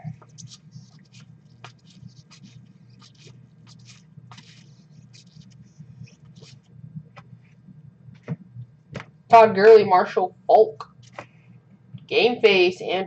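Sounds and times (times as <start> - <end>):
low steady hum: 0.0 - 13.0
trading cards sliding and scraping: 0.2 - 5.6.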